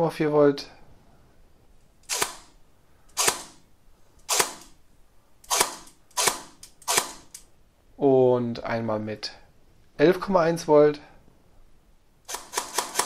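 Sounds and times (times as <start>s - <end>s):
airsoft gearbox dry-firing shots: 2.0s - 4.8s, 5.4s - 7.4s, 12.3s - 13.0s.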